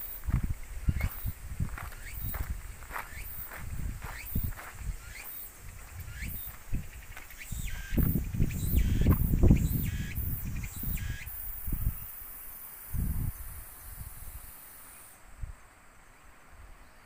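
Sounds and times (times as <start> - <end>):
wind buffeting microphone: 0.0 - 12.1, 12.9 - 14.4
cicada buzzing: 0.0 - 15.4.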